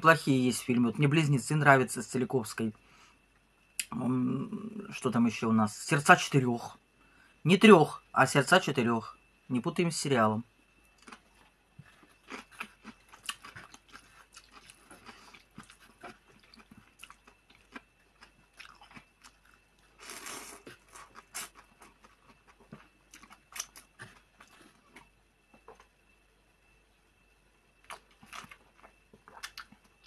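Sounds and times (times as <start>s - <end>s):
chewing and mouth smacks: 11.0s - 25.9s, 27.8s - 30.0s.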